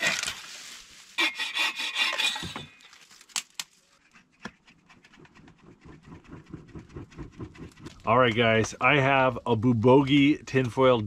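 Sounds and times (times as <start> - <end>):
saw cutting through branch: 1.1 - 3.0.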